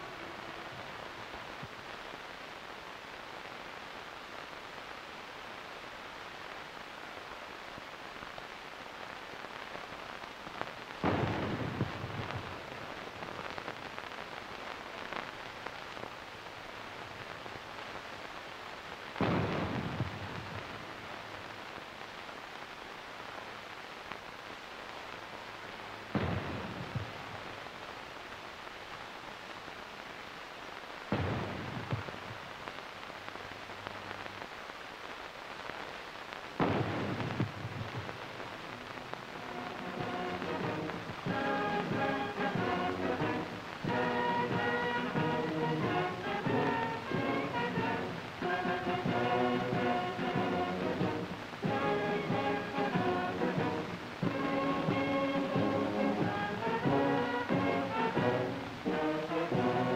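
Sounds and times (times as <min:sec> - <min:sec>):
crackling film soundtrack hiss: 0:00.0 - 0:59.9.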